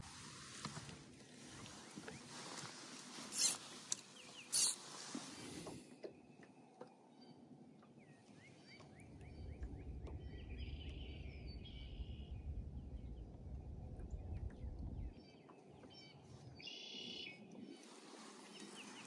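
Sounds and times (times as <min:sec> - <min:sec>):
small bird chirping: 0:03.3 - 0:04.8
wind rumble on microphone: 0:09.2 - 0:15.4.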